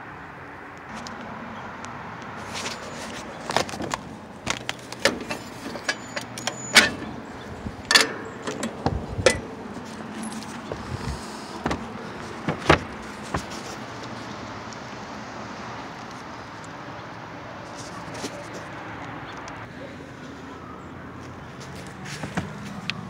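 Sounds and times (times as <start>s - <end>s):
metallic clicks and rattles: 3.6s - 7.2s.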